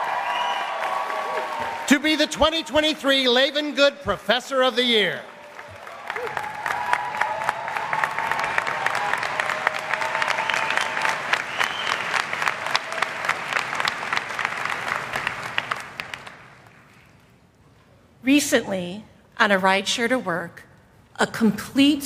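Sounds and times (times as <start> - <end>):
people cheering: 0.0 - 2.7, 5.0 - 16.3
audience applauding: 0.0 - 17.3.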